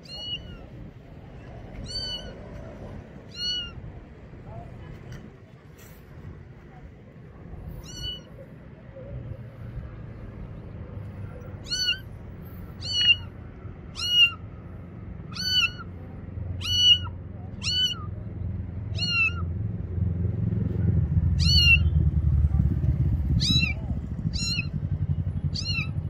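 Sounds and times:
kitten meowing: 0.0s - 0.9s, 1.8s - 2.5s, 3.2s - 3.9s, 7.8s - 8.5s, 11.6s - 12.1s, 12.8s - 14.4s, 15.3s - 18.2s, 18.9s - 19.5s, 21.4s - 21.9s, 23.4s - 24.8s, 25.5s - 26.0s.

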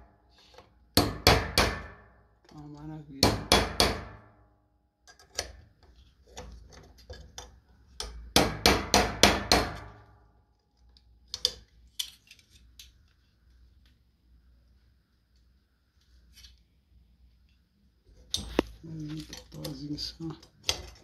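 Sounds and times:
hammer striking a rivet: 1.0s - 2.2s, 3.2s - 4.3s, 8.0s - 10.0s.

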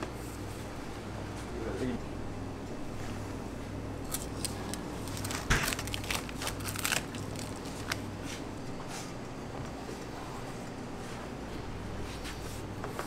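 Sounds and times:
steady low hum: 0.0s - 13.0s
wet rustling of fish: 4.2s - 8.0s.

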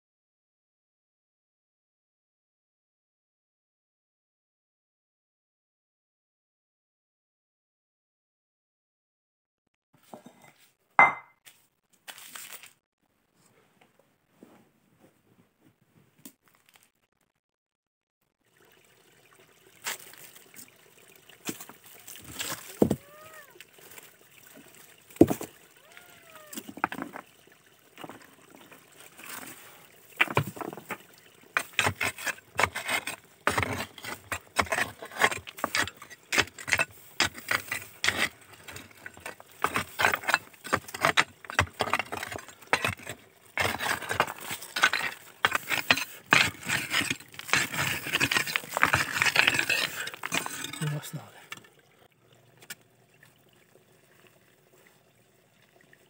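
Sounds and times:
hand tool digging stony soil: 21.4s - 23.6s, 31.6s - 51.2s.

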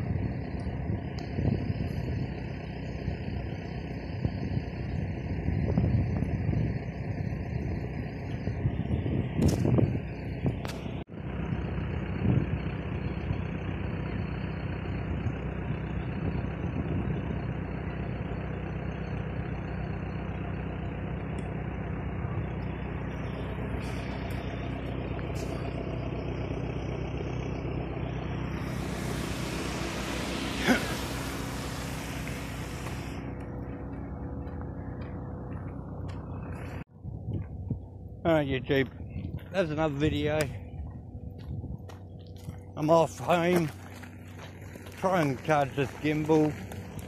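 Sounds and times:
engine running with low hum: 0.0s - 47.0s
rushing hiss: 28.5s - 33.3s.

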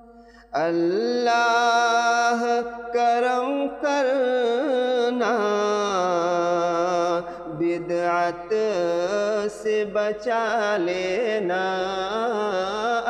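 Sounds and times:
man breathing: 0.0s - 0.6s, 7.2s - 7.5s
man singing: 0.0s - 13.0s.

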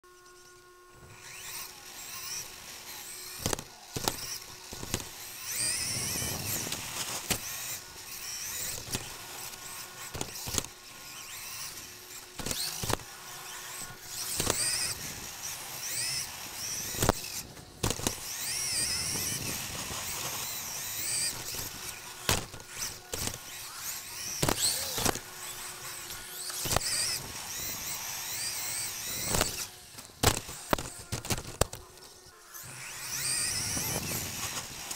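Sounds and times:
rc car motor and gears whining: 0.0s - 34.9s
sharp knocks from bumps: 22.2s - 23.5s, 24.4s - 25.2s, 29.2s - 31.8s.

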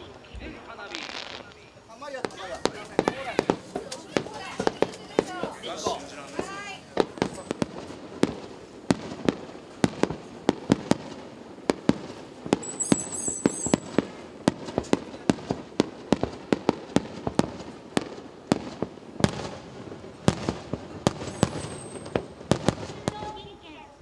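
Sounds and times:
firework shells bursting: 0.0s - 23.6s
high whistle: 12.6s - 13.9s.

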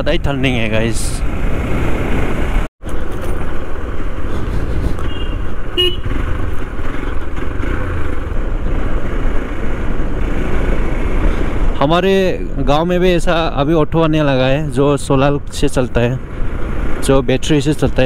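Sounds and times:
wind rush: 0.0s - 2.7s, 3.7s - 7.1s, 7.8s - 12.0s
motorcycle engine and road rumble: 0.0s - 18.0s.

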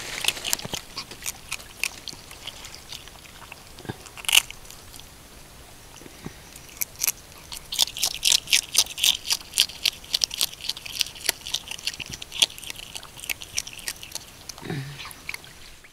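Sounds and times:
otter crunching crab shell: 0.0s - 5.1s, 6.5s - 15.5s.

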